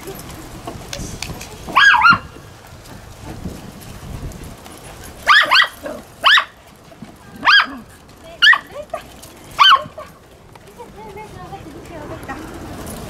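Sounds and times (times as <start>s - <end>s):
dog barking: 1.8s - 2.3s, 5.2s - 6.6s, 7.3s - 8.8s, 9.6s - 10.2s.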